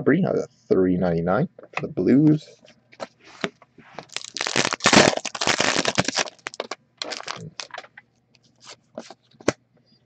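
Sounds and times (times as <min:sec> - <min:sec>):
foil wrapper tearing and crinkling: 0:04.0 - 0:07.9.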